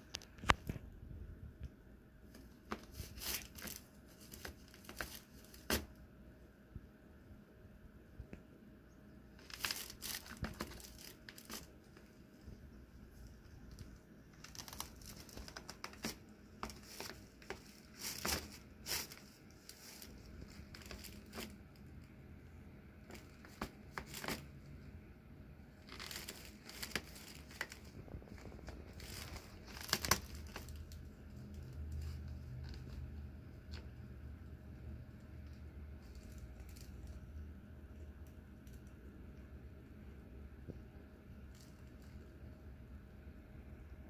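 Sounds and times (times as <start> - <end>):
nylon tunnel crinkling: 2.3 - 5.9, 9.4 - 22.0, 23.0 - 24.7, 25.8 - 34.0.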